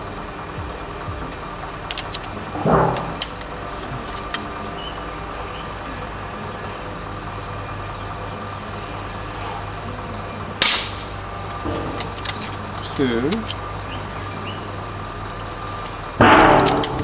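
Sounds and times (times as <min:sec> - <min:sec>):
steady low hum: 0:00.0 - 0:17.0
air rifle shot: 0:10.6 - 0:11.1.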